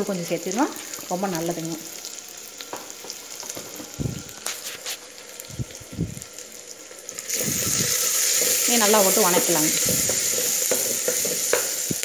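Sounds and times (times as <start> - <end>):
onions frying in hot oil: 0.0 - 12.0
spoon knocking and scraping pan: 2.7 - 3.9, 7.3 - 12.0.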